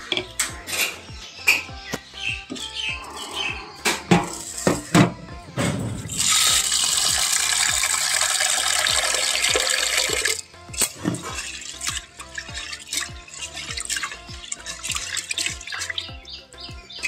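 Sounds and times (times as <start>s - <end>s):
tap water running into a pot: 6.1s - 16.0s
water dripping and splashing: 6.1s - 16.2s.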